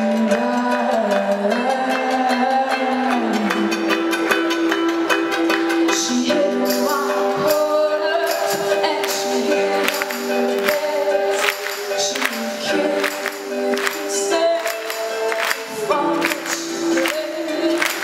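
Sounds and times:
live band sustained chords: 0.0 - 18.0
percussion hits: 0.0 - 18.0
person singing: 0.0 - 18.0.

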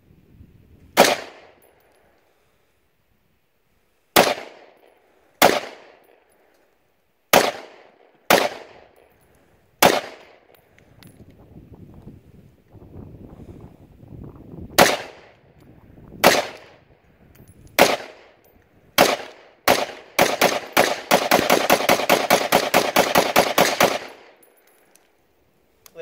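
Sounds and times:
rifle shots echoing: 1.0 - 1.6, 4.2 - 6.2, 7.3 - 9.1, 9.8 - 10.5, 14.8 - 15.4, 16.2 - 16.9, 17.8 - 24.4.

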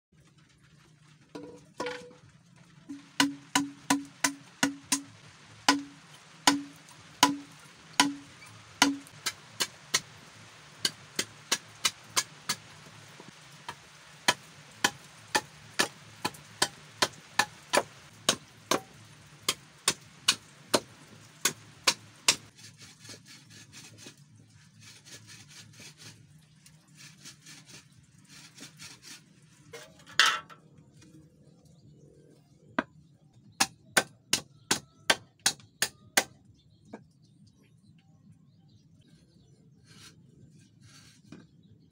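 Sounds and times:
machete chopping bamboo: 2.9 - 10.1, 10.8 - 12.6, 13.7 - 18.9, 19.5 - 24.1, 33.6 - 36.4.

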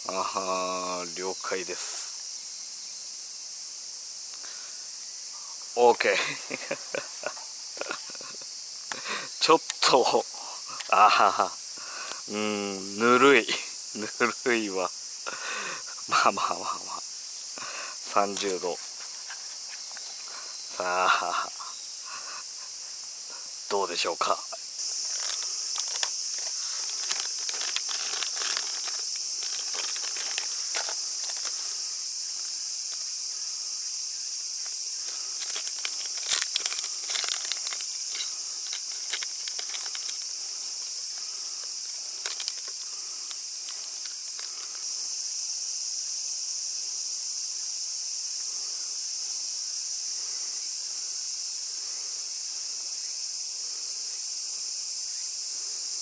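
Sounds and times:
insects droning: 0.0 - 56.0
plastic bags crinkling: 24.8 - 31.6, 35.0 - 43.0.

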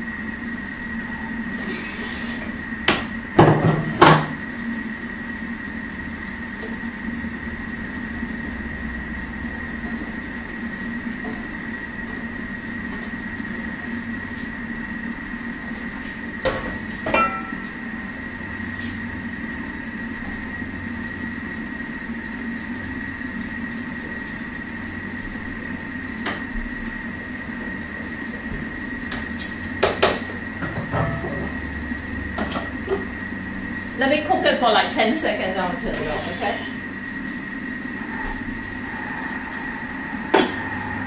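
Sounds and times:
kitchen appliance motor hum: 0.0 - 41.0
metal bowls knocking: 17.1 - 17.6.

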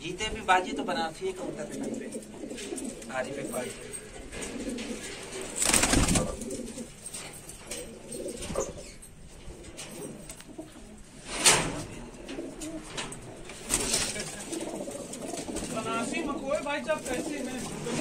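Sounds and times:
pigeons cooing: 0.7 - 18.0
loud rustles: 2.6 - 10.5.

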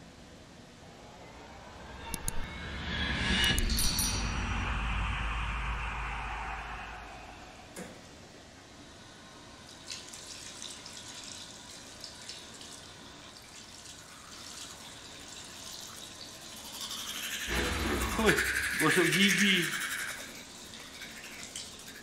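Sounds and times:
water splashes and drips: 9.6 - 22.0.

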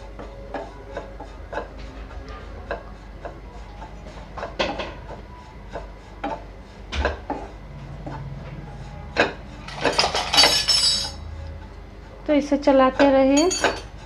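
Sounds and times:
metal utensils clinking: 9.7 - 11.2, 13.3 - 13.9.

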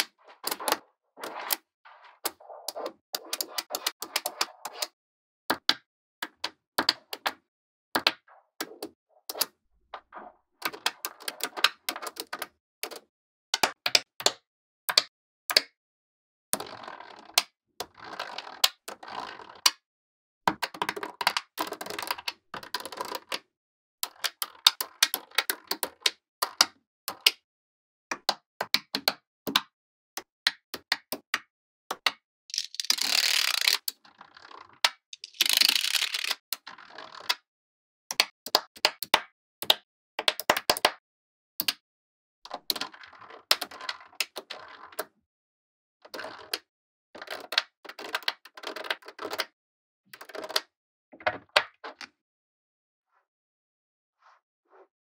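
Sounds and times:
magnetic balls clattering: 35.2 - 36.3
magnetic balls clicking: 35.2 - 36.4.

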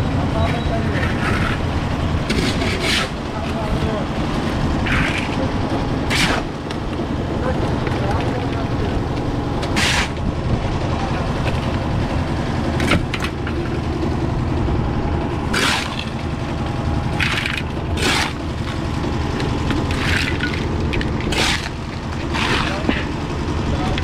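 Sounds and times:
concrete mixer engine running: 0.0 - 24.0
shovel scraping wet concrete: 0.9 - 1.7, 2.3 - 3.6, 4.8 - 6.5, 9.7 - 10.2, 15.5 - 16.2, 17.2 - 23.2.

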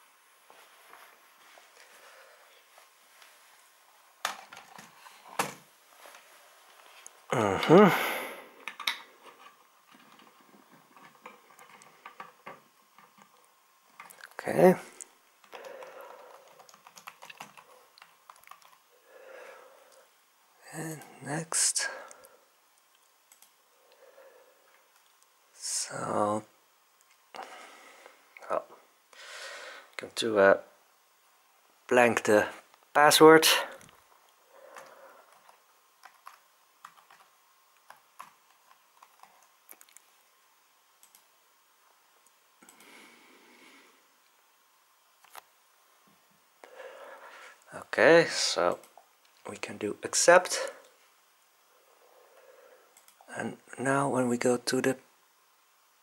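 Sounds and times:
soft rustle: 0.4 - 3.9, 4.9 - 7.2
computer keyboard typing: 15.4 - 18.8, 35.3 - 40.0.

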